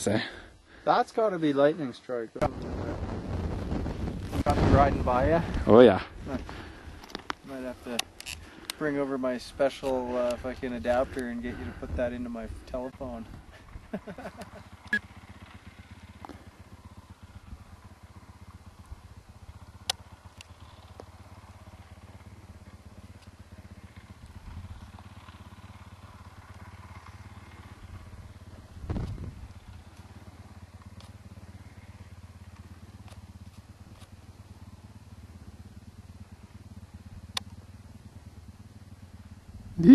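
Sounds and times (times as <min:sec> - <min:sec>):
dirt bike engine running: 0:00.0 - 0:39.9
sharp click: 0:37.3 - 0:37.6.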